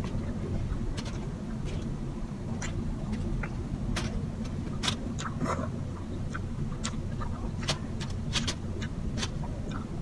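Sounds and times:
person chewing food: 0.0s - 1.9s, 2.5s - 10.0s
steady low hum: 0.0s - 10.0s
lip smacks: 4.8s - 9.9s.

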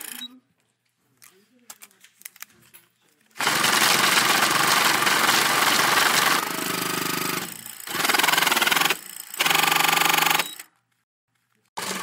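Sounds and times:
money counting machine motor humming: 3.4s - 10.6s, 11.8s - 12.0s
banknotes rattling through machine: 3.4s - 10.8s.

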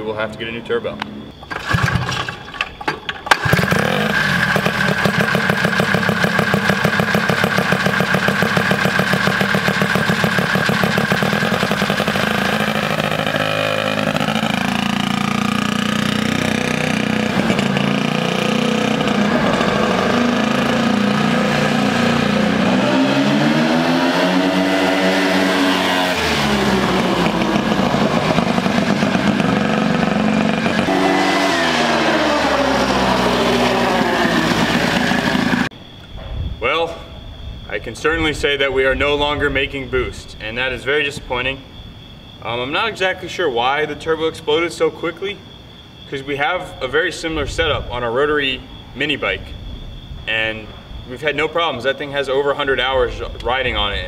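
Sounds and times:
quad engine revving: 1.4s - 35.7s.

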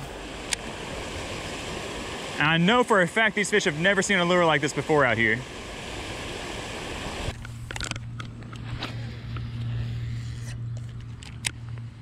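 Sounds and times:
rushing water: 0.0s - 9.0s
fishing reel whirring and clicking: 7.3s - 11.9s.

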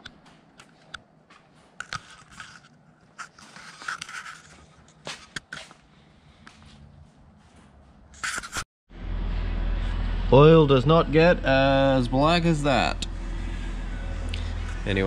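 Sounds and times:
footsteps on concrete floor: 0.0s - 8.6s
camera handling rubs: 1.8s - 5.7s, 8.2s - 8.6s.

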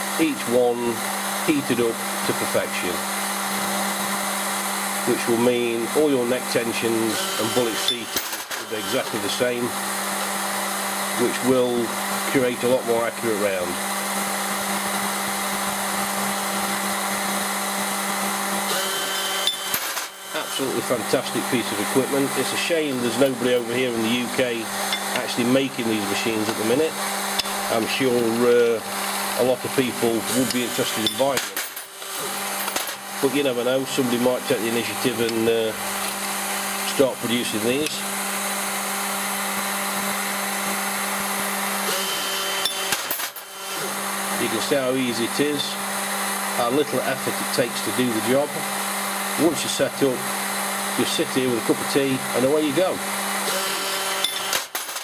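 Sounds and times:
gas torches hissing: 20.2s - 31.4s.

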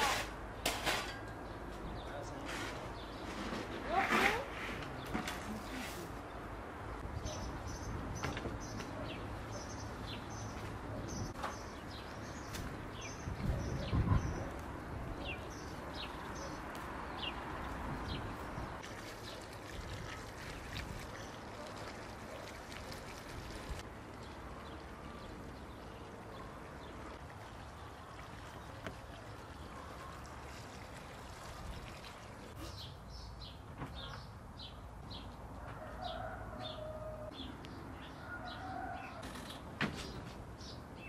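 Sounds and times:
small birds chirping: 7.0s - 23.5s, 32.5s - 35.4s.

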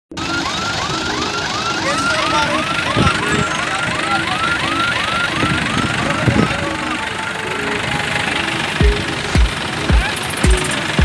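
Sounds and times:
electronic siren-like whoop: 0.1s - 9.3s
low repeated tones: 0.1s - 11.0s.

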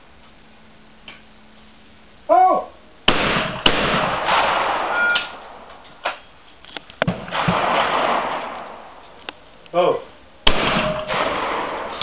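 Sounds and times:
shotgun shots with echo: 3.1s - 5.6s, 7.0s - 8.9s, 10.4s - 12.0s.

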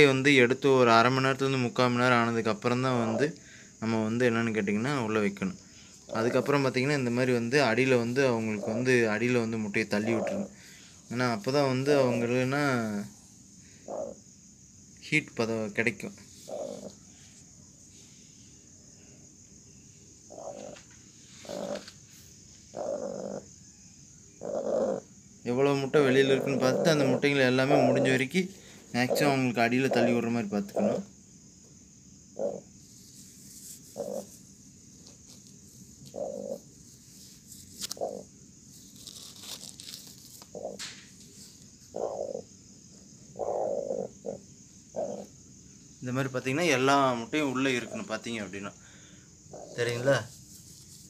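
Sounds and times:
crickets chirping: 0.0s - 51.0s
hen growling calls: 2.8s - 3.4s, 6.1s - 10.6s, 13.8s - 14.2s, 16.4s - 17.0s, 20.3s - 21.9s, 22.7s - 23.5s, 24.4s - 25.1s, 26.0s - 31.1s, 32.3s - 32.7s, 33.9s - 34.3s, 36.1s - 36.7s, 38.0s - 38.3s, 40.5s - 40.8s, 41.9s - 45.4s, 49.5s - 50.2s.

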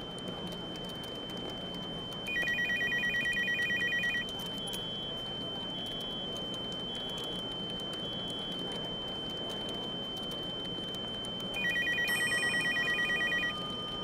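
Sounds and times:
telephone ringing trill: 2.3s - 4.2s, 11.6s - 14.0s.

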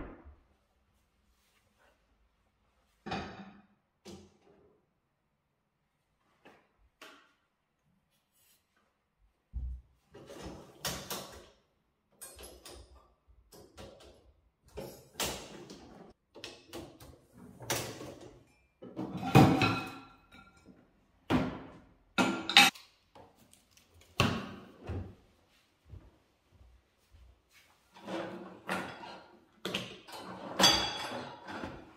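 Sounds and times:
dishwasher racks sliding: 28.0s - 31.9s
dishes and utensils clinking: 30.0s - 31.9s.

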